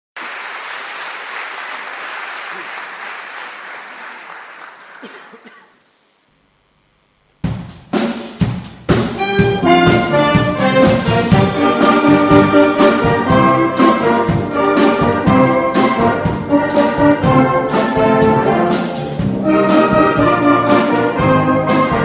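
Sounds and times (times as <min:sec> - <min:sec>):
audience applause: 0:00.2 - 0:05.4
drum hits: 0:07.4 - 0:22.0
brass and woodwind chords: 0:09.2 - 0:22.0.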